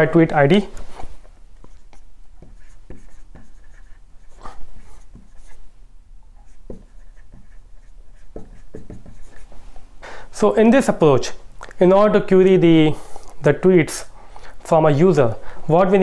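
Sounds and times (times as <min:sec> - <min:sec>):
marker scratching on whiteboard: 0:01.6 - 0:05.6, 0:06.3 - 0:09.6.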